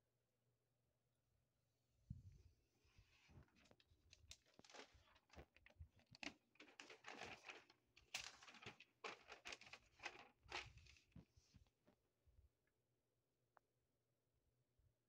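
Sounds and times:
paper crinkling and rustling: 0:03.2 - 0:12.0.

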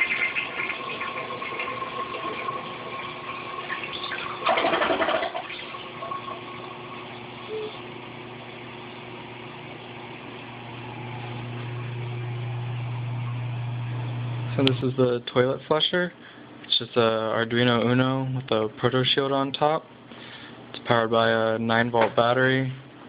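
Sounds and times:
toilet flushing: 0:00.0 - 0:13.2
low steady hum: 0:00.1 - 0:23.0.

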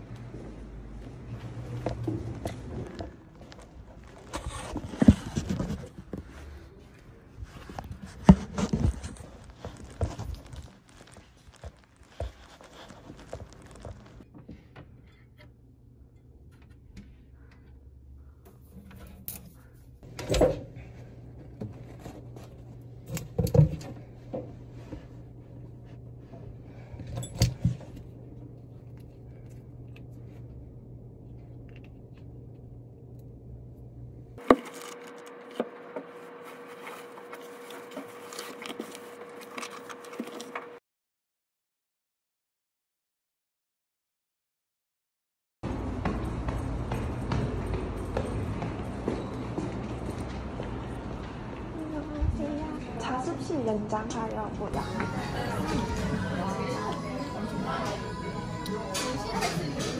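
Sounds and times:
rustling of belongings: 0:01.6 - 0:14.7, 0:34.4 - 0:40.8.

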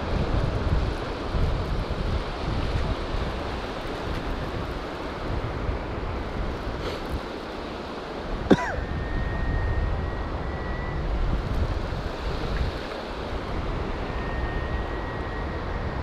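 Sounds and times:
wind buffeting microphone: 0:00.0 - 0:16.0
thin steady high tone: 0:08.6 - 0:11.8, 0:12.9 - 0:16.0
sharp falling whistle: 0:08.8 - 0:11.1, 0:14.0 - 0:16.0.

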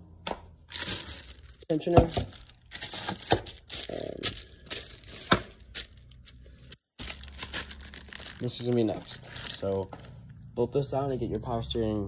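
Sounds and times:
plastic bag crinkling: 0:00.6 - 0:10.4.

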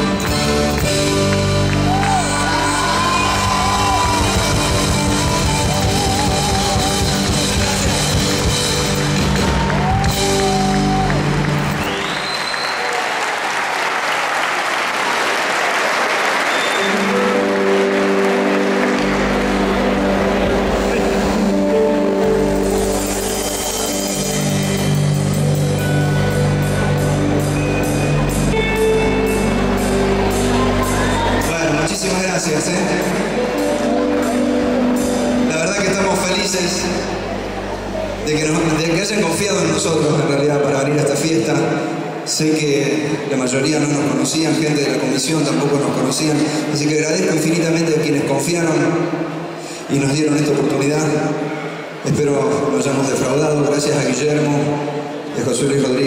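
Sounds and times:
live folk band playing: 0:00.0 - 0:12.3, 0:16.8 - 0:38.9
folk dance accompaniment: 0:00.0 - 0:21.6
crowd applauding: 0:00.0 - 0:21.7, 0:22.4 - 0:39.8.

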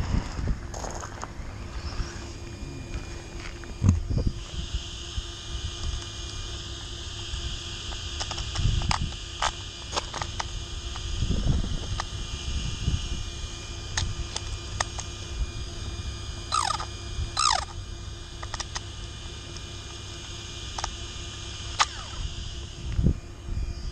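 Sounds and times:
wind rumble on microphone: 0:00.0 - 0:06.0, 0:10.8 - 0:14.3, 0:22.2 - 0:23.9.

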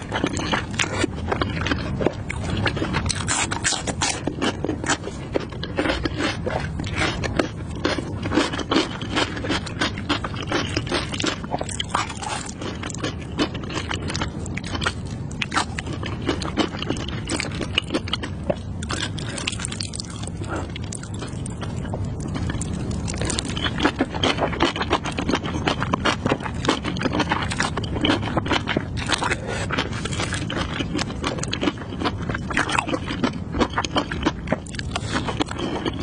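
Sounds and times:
wet chewing mouth sounds: 0:00.0 - 0:36.0.

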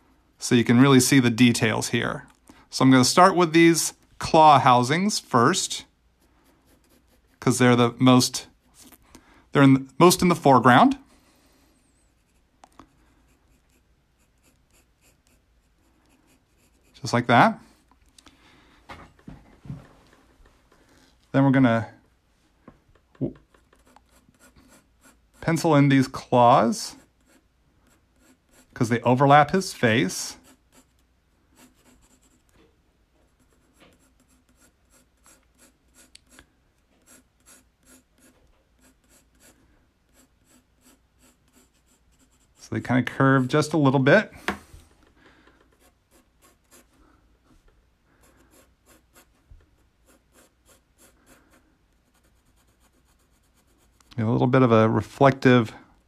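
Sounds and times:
pencil scratching on paper: 0:06.2 - 0:08.0, 0:12.0 - 0:17.2, 0:23.4 - 0:25.6, 0:26.9 - 0:28.8, 0:30.1 - 0:32.5, 0:33.3 - 0:43.8, 0:45.6 - 0:47.0, 0:48.2 - 0:54.1.

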